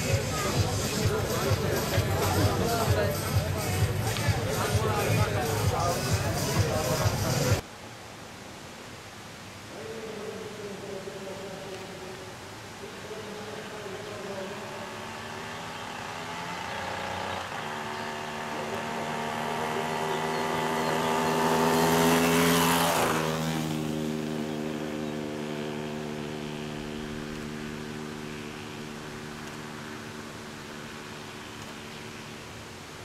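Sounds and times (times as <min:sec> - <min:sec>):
vehicle engine passing: 0:00.0 - 0:07.6, 0:12.9 - 0:33.0
road noise: 0:00.0 - 0:33.0.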